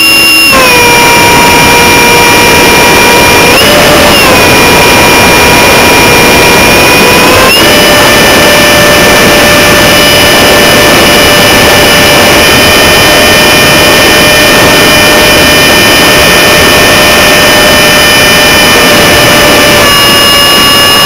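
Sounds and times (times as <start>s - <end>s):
wind rushing over microphone: 0.0s - 15.0s
electric fans whining: 0.0s - 21.0s.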